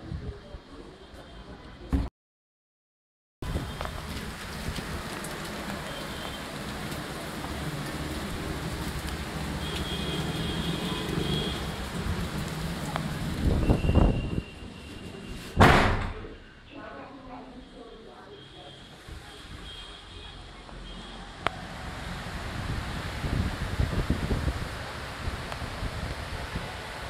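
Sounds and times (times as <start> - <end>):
heavy rain pouring: 3.4 - 15.6, 18.8 - 27.0.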